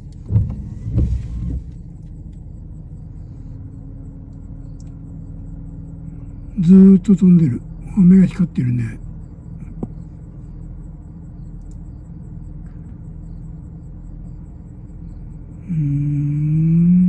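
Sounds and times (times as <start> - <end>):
low machine hum: 0.0 - 17.0
man humming: 15.6 - 17.0.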